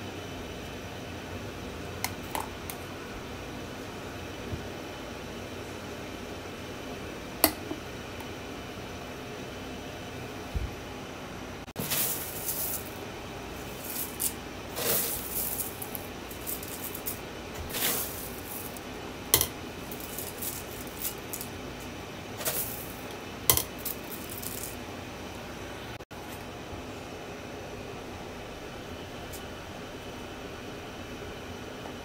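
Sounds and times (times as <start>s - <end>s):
background hiss: 11.6s - 23.1s
cornflakes dropping into glass bowl: 11.8s - 13.0s, 13.6s - 18.8s, 19.4s - 21.6s, 22.4s - 24.8s.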